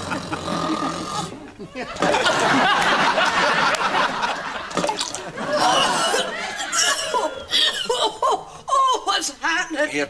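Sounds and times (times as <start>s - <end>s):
audience laughter: 0.0s - 7.4s.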